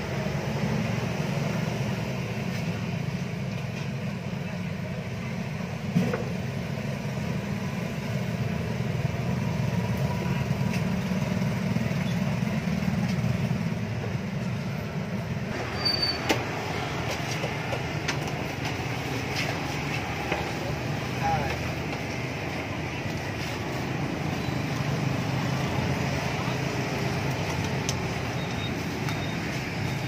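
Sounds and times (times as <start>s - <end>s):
motorbike engine rumble: 0.0s - 30.0s
road noise: 0.0s - 30.0s
scattered clicks: 27.2s - 29.6s.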